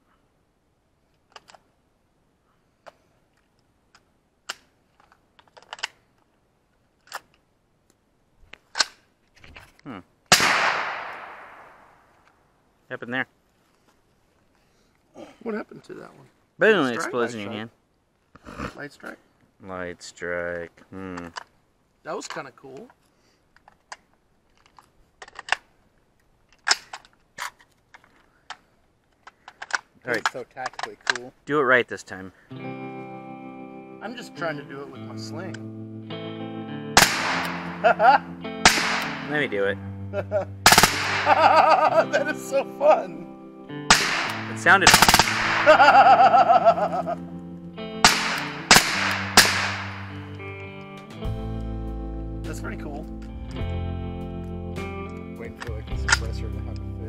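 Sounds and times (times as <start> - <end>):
rifle metallic clicks and clacks: 1.2 - 1.6, 2.8 - 6.0, 23.6 - 25.7, 26.5 - 31.3, 43.9 - 45.7, 55.0 - 56.9
rifle action clicking: 3.9 - 6.0, 24.6 - 25.7, 43.9 - 45.6, 56.0 - 56.8.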